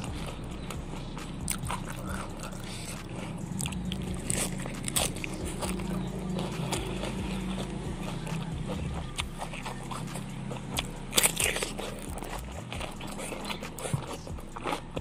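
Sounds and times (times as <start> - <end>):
crunchy chewing: 0.0 - 15.0
wet chewing: 0.0 - 15.0
crisp crunch of cucumber bite: 1.4 - 6.9, 10.8 - 15.0.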